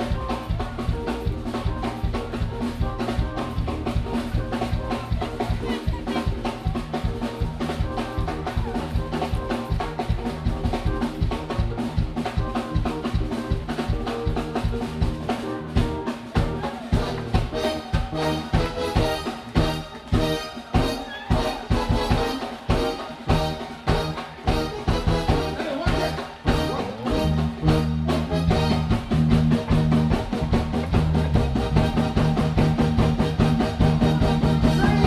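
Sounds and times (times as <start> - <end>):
bass line: 0.0 - 35.0
drum-kit beat: 0.0 - 35.0
electric guitar: 0.0 - 35.0
keyboards: 0.0 - 35.0.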